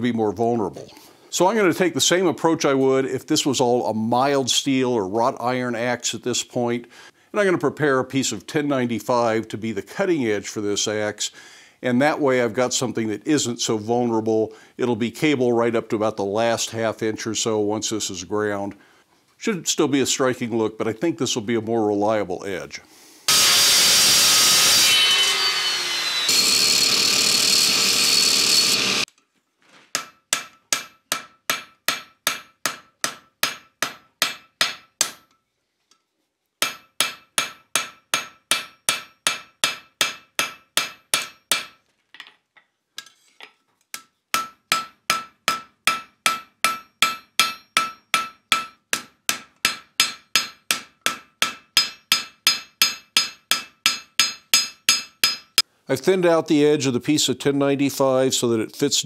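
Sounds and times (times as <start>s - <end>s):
hammer striking metal on anvil: 30.0s - 35.4s, 36.6s - 41.8s, 44.0s - 55.6s.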